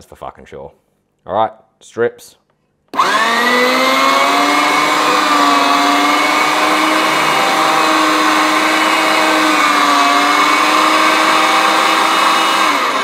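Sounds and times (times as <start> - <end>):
electric meat mincer whining: 3.0 - 13.0.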